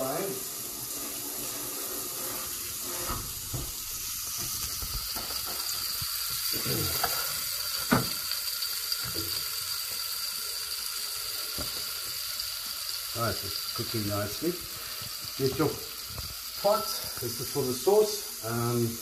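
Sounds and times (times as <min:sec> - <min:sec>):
fish frying in oil: 0:00.0 - 0:19.0
oil popping: 0:02.6 - 0:10.9, 0:11.5 - 0:12.7, 0:14.7 - 0:17.3.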